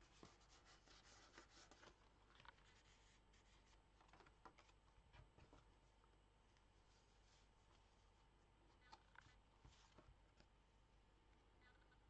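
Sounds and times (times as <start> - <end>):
paper rustling and sliding: 0.0 - 4.8.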